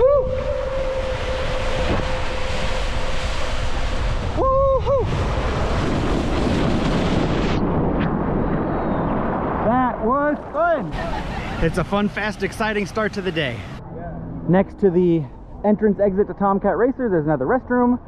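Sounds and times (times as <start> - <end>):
person whooping: 0.0 - 1.5, 4.3 - 5.2
water rushing: 0.0 - 7.5, 9.6 - 13.8
wind on microphone: 0.0 - 12.2.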